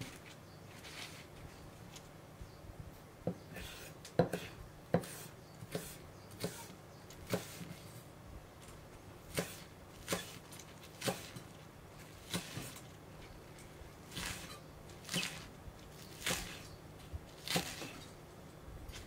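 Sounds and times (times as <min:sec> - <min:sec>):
knife chopping on wooden board: 0:03.3 - 0:06.7, 0:07.3 - 0:07.7, 0:09.3 - 0:10.4, 0:11.0 - 0:11.4, 0:17.4 - 0:18.0.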